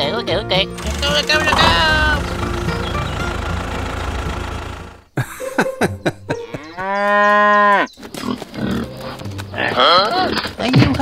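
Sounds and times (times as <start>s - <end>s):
cow mooing: 0.8s - 3.3s.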